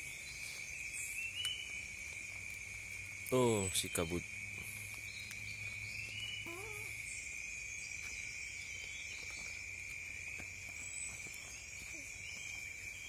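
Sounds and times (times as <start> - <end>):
insects chorus: 0.0 - 13.0
wavering call: 6.4 - 7.0.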